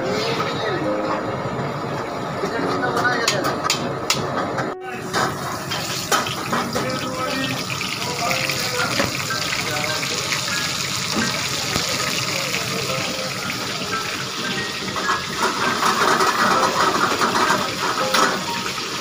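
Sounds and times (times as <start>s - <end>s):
hot oil sizzling in a wok: 5.3s - 19.0s.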